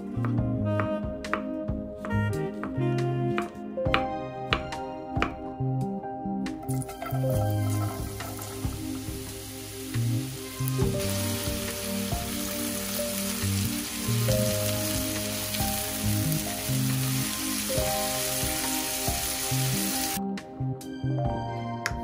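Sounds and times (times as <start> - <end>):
background music: 0.0 - 22.0
mushrooms sizzling in a pan: 7.0 - 20.2.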